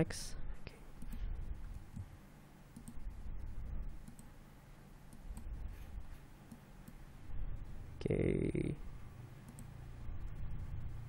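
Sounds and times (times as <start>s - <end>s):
low background hum: 0.0s - 11.0s
computer mouse clicks: 1.0s - 2.1s, 2.7s - 3.1s, 4.0s - 4.3s, 5.1s - 5.6s, 9.5s - 9.7s.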